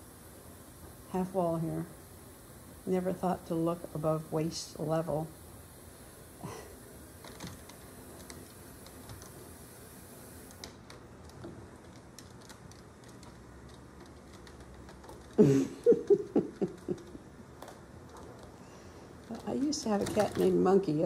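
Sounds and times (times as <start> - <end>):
kitten claws scratching cat tree: 10.9 - 15.4.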